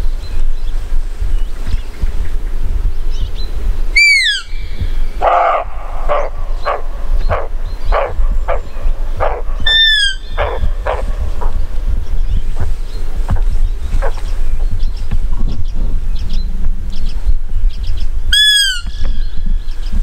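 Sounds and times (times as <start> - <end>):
wind rumbling on microphone: 0.0 - 20.0
high whistled calls: 3.1 - 20.0
deer barking: 5.2 - 11.6.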